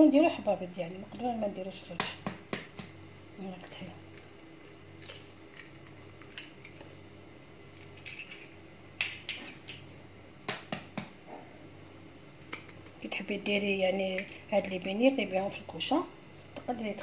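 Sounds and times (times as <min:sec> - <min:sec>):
egg cracking over plastic bowl: 0:04.0 - 0:07.0, 0:07.7 - 0:11.2, 0:12.4 - 0:13.0.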